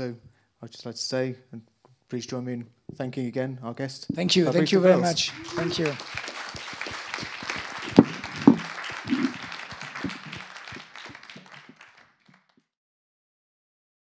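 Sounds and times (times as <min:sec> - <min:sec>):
audience applauding: 0:04.5 - 0:12.6
loud knocks: 0:06.5 - 0:11.7.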